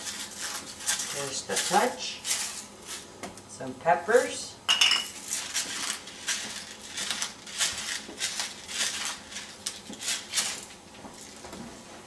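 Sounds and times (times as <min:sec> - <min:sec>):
spice jar rattling shakes: 0:05.1 - 0:11.4.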